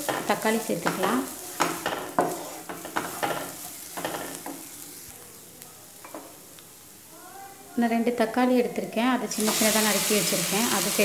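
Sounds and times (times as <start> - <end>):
wooden spatula scraping a pan: 0.0 - 4.8
sizzling in oil: 0.0 - 7.1, 9.3 - 11.0.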